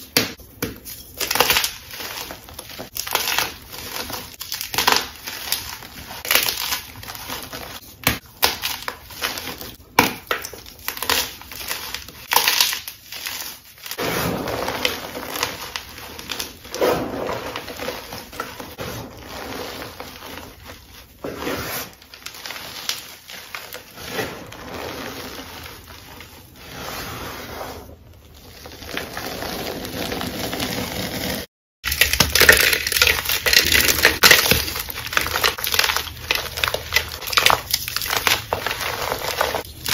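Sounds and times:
hands crunching chalk blocks: 28.6 - 39.9.

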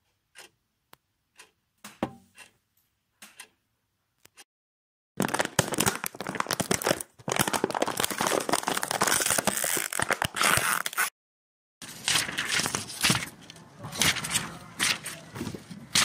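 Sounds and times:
crumpling and crinkling: 5.2 - 11.1.

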